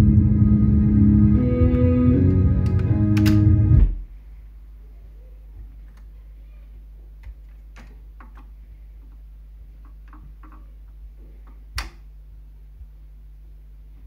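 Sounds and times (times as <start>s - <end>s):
low steady hum: 0.0s - 14.0s
turntable mechanism clicking: 2.2s - 3.5s.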